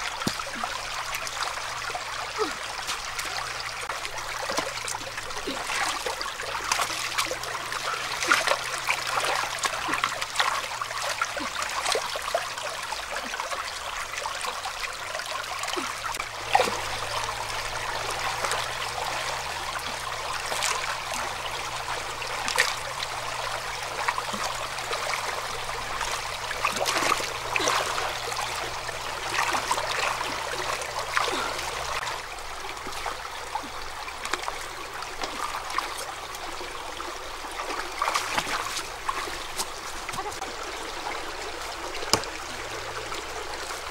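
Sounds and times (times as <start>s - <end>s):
stream water trickling: 0.0s - 43.9s
hands splashing in water: 26.0s - 28.4s.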